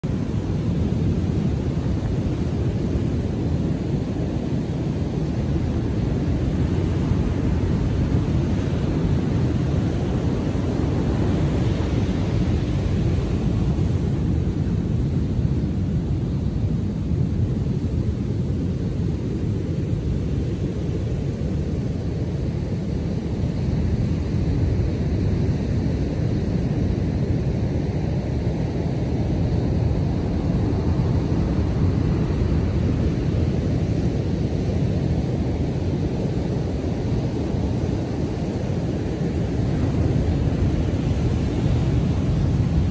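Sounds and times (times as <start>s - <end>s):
crashing waves rumble: 0.0s - 42.9s.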